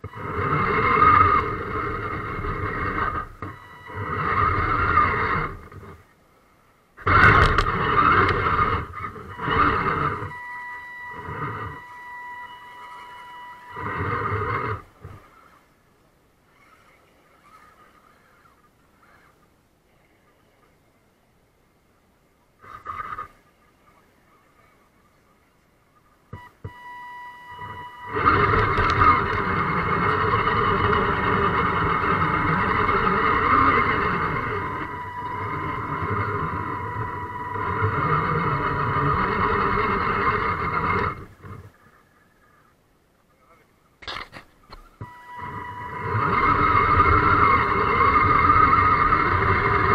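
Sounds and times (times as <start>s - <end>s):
toy truck driving on dirt: 0.0s - 6.0s, 7.0s - 15.7s, 26.4s - 41.8s, 44.0s - 49.9s
electric motor whining: 0.0s - 6.1s, 7.0s - 15.6s, 26.3s - 41.8s, 44.0s - 49.9s
clicks: 7.0s - 15.3s, 26.3s - 41.7s.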